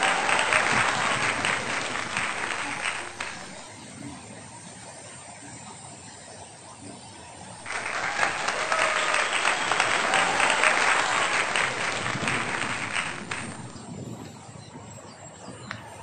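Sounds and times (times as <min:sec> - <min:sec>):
crowd applause: 0:00.0 - 0:03.6, 0:07.6 - 0:13.9.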